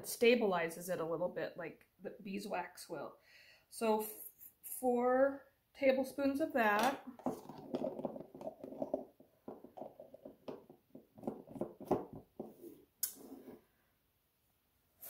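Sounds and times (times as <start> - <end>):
jar lid scraping and knocks: 6.9 - 13.6.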